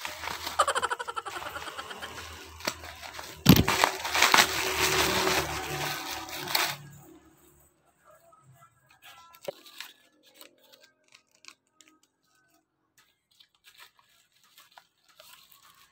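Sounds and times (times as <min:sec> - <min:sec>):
plastic wrapping crinkling: 0:00.0 - 0:07.2, 0:09.0 - 0:15.9.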